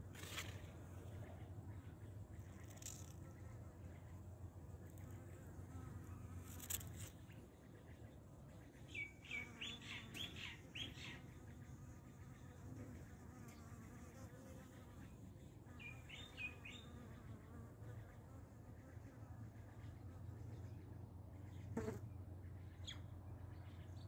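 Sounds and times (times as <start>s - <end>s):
bird chirps: 8.8s - 11.2s
bee buzzing: 9.3s - 19.6s, 21.8s - 22.0s.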